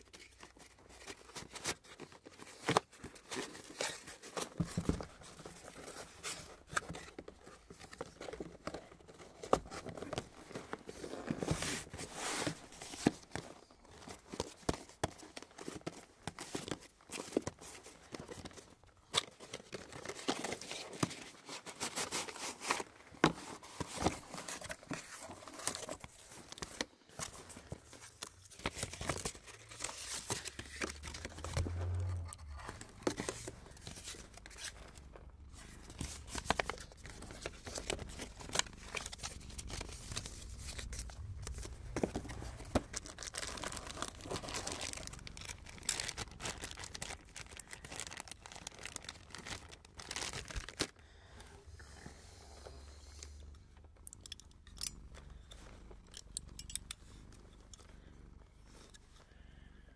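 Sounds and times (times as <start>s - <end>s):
cardboard box opening: 19.2s - 50.9s.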